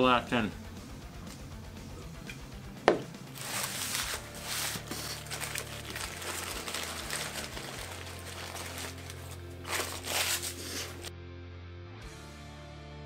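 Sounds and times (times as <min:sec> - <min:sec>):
paper wrapper crinkling: 0:03.3 - 0:11.1.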